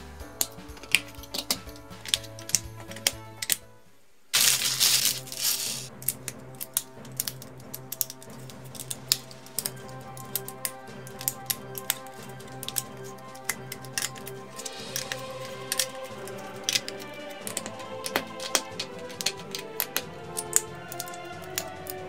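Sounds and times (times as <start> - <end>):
background music: 0.0 - 22.0
plastic bag rustling: 4.3 - 5.9
plastic bricks snapping together: 4.4 - 22.0.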